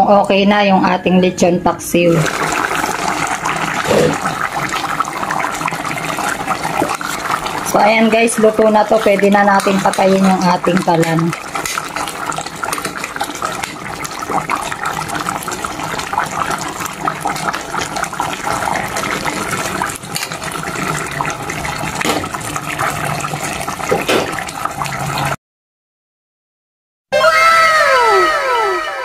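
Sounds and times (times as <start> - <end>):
thick sauce bubbling in a pot: 2.2 - 25.4
metal ladle stirring: 8.4 - 12.1.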